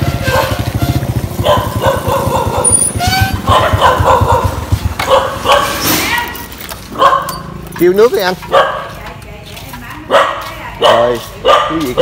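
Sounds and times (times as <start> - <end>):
motorbike engine idling: 0.0 - 12.0
dog barking: 0.2 - 0.7, 1.4 - 7.5, 8.4 - 9.0, 10.0 - 12.0.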